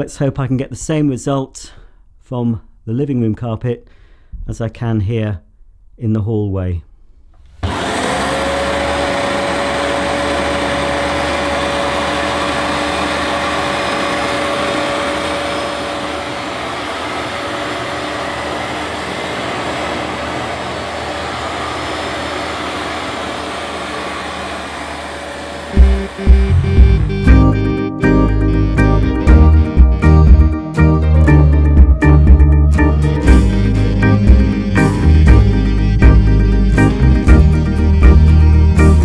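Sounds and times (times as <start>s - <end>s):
carpet washer motor whining: 7.6s - 27.8s.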